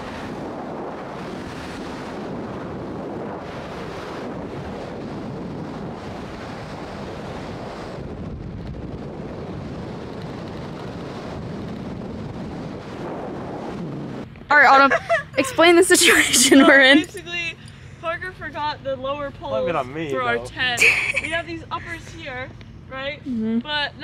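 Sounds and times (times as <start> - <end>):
wind rushing over microphone: 0.0 - 18.8
car road rumble: 0.0 - 24.0.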